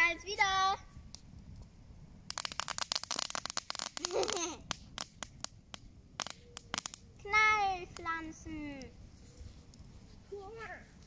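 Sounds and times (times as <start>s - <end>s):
child's voice: 0.0s - 0.9s, 7.2s - 8.9s, 10.3s - 11.0s
campfire crackling and popping: 0.0s - 11.0s.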